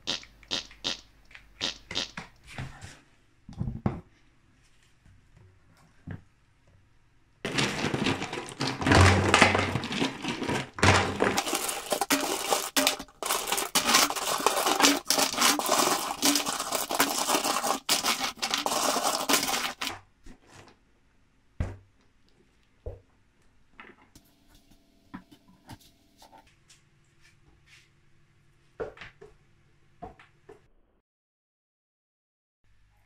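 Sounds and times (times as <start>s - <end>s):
stones rattling in plastic pipe: 7.5s - 20.0s.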